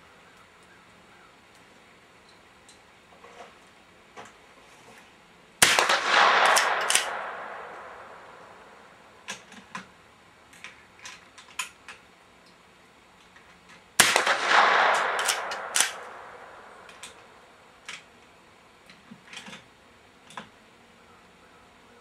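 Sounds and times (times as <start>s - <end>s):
rifle shot: 5.6s - 9.2s, 14.0s - 17.5s.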